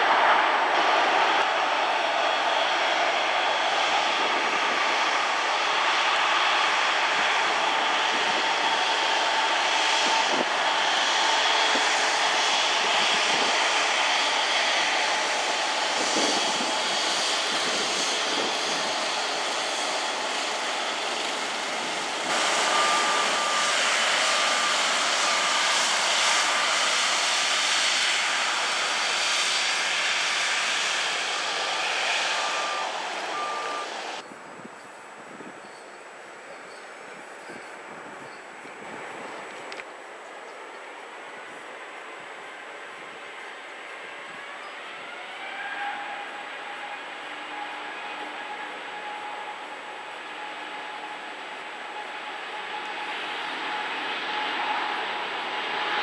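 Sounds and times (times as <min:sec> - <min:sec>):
jet engine whine: 0:00.0 - 0:56.0
short electronic beeps: 0:32.5 - 0:33.9.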